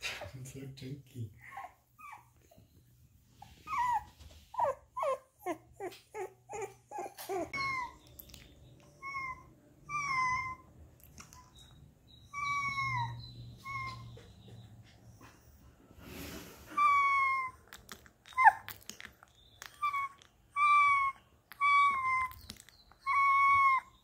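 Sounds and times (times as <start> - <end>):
puppies whining: 1.4 - 15.7, 16.7 - 24.0
puppies yelping: 3.6 - 8.1, 8.8 - 10.8, 11.4 - 14.6, 16.8 - 17.7, 18.3 - 18.7, 19.6 - 24.0.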